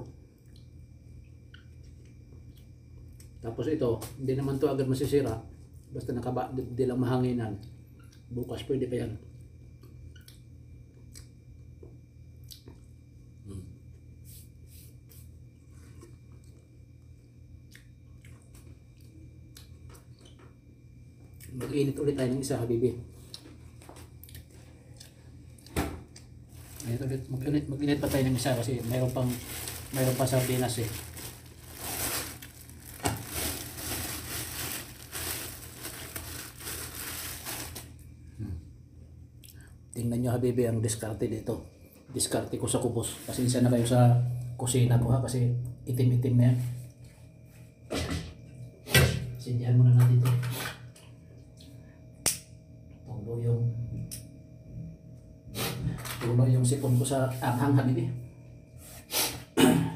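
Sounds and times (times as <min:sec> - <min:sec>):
low steady hum: 0:00.0 - 0:59.7
plastic bag crinkling: 0:26.5 - 0:38.0.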